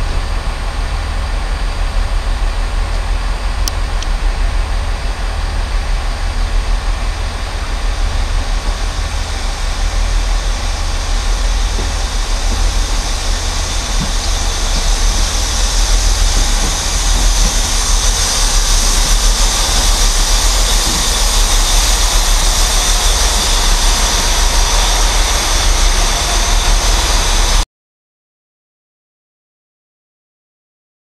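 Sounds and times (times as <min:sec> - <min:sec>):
diesel train passing: 0:00.0 - 0:27.6.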